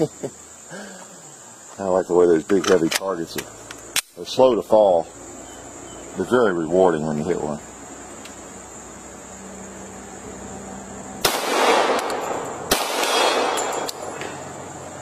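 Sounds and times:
crickets buzzing: 0.0 - 15.0
pistol shots echoing: 11.2 - 14.4.

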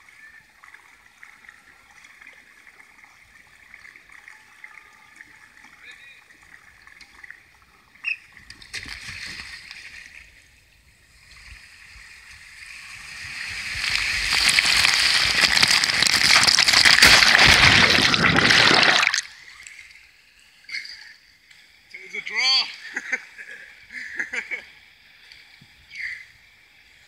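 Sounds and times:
water rushing and spraying: 11.6 - 19.5.

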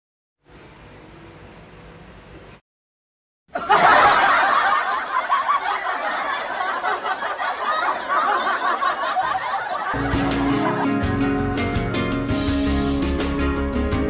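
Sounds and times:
laughter: 3.5 - 11.8
guitar music: 10.0 - 14.0.

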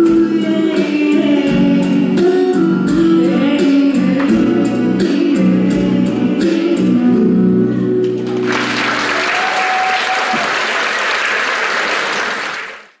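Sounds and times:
song with held notes: 0.0 - 9.1
audience applauding: 8.0 - 13.0.

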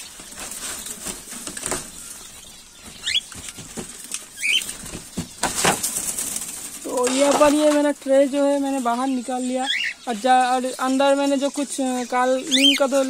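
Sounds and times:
bird chirps: 0.0 - 7.0, 8.1 - 13.0
birds fluttering: 0.0 - 13.0
metal tray clattering and scraping: 5.1 - 8.0.

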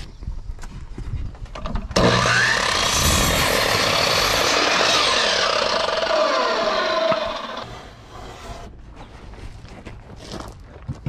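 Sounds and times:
miter saw cutting wood: 2.0 - 8.8.

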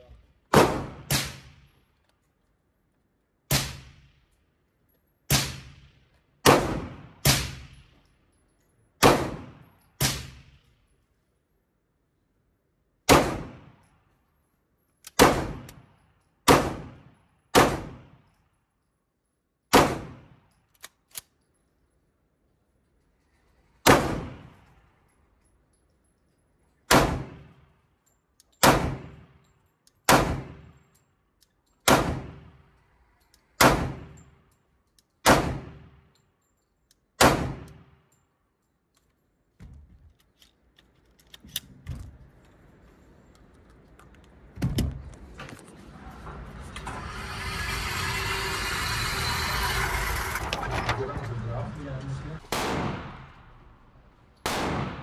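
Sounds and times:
pistol shots echoing: 0.5 - 1.4, 52.4 - 55.0.

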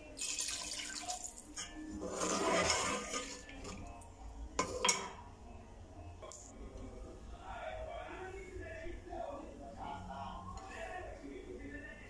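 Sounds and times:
water splashing into metal pot: 0.0 - 1.8.

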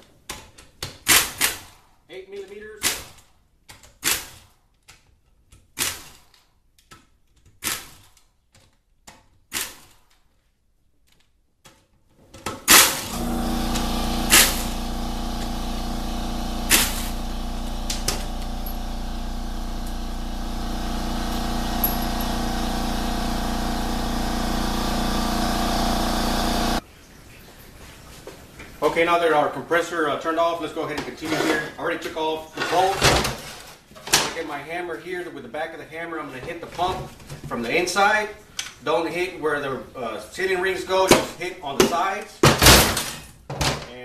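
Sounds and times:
pneumatic tool bursts: 12.6 - 26.8
air compressor humming: 12.7 - 26.8.

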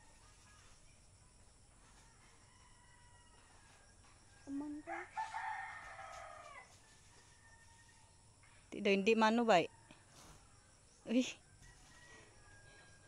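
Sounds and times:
rooster crowing: 2.0 - 8.2, 11.5 - 13.0.

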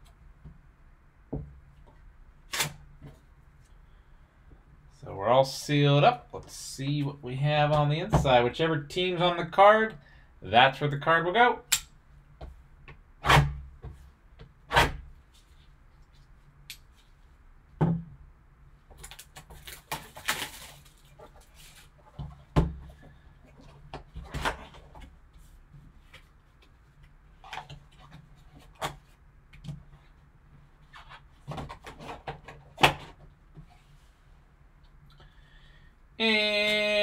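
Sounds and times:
wrapping rustling: 18.9 - 22.2.

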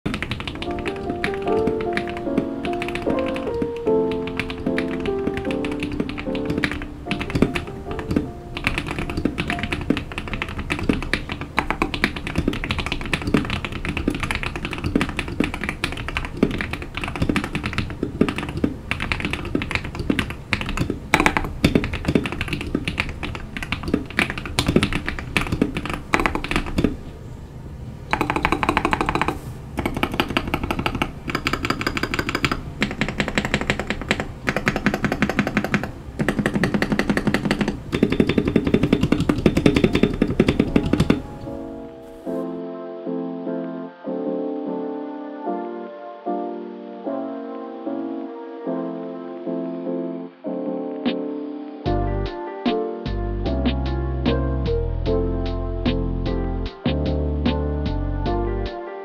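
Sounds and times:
fast typing on mechanical keyboard: 0.1 - 27.0, 28.1 - 41.4.

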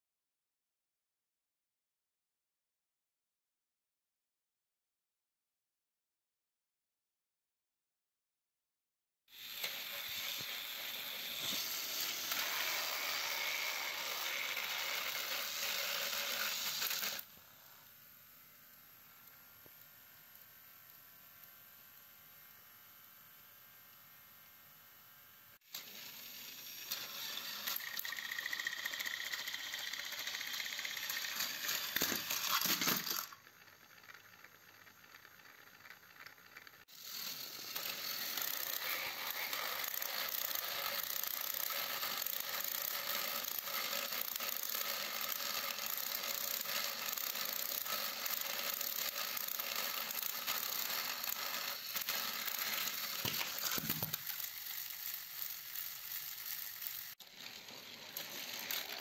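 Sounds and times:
toy train motors whirring: 9.3 - 23.3, 25.6 - 59.0.

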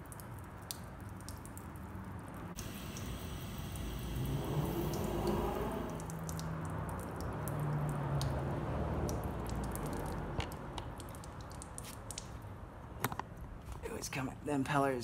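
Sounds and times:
water splashing and dripping: 0.0 - 13.4.

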